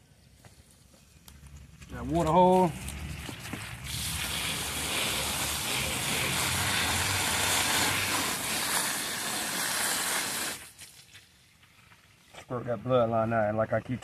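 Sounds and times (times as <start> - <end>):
hose spraying water: 2.0 - 12.4.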